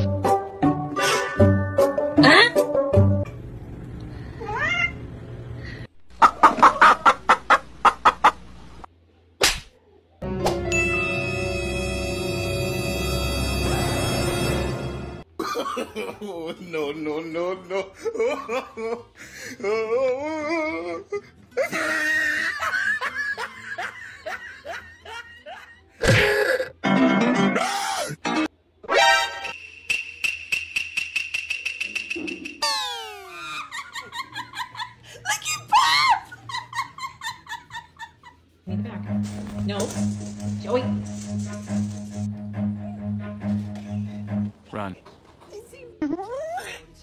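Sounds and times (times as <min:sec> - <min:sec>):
people laughing: 0:06.2 - 0:08.4, 0:20.5 - 0:26.0, 0:33.3 - 0:38.6.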